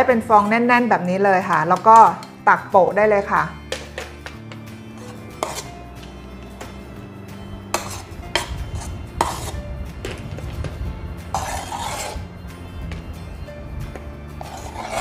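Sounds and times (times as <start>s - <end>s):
background music: 0.0s - 15.0s
spoon scraping cup: 4.7s - 5.8s, 7.6s - 9.6s, 11.3s - 12.3s, 14.4s - 15.0s.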